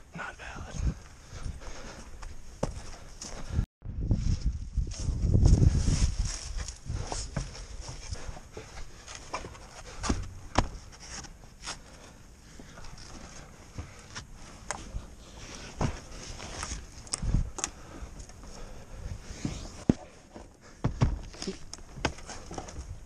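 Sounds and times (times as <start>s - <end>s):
clothing rustling against wood: 5.0s - 23.0s
boots knocking on wood: 9.3s - 10.9s, 19.4s - 23.0s.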